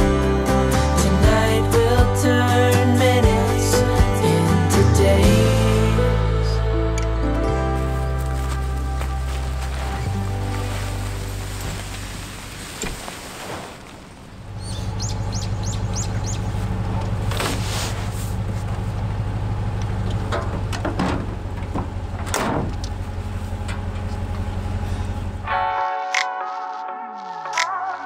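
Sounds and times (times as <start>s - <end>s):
birds chirping: 14.2s - 17.2s
vehicle engine idling: 14.4s - 25.5s
gear knocking into truck bed: 20.2s - 22.8s.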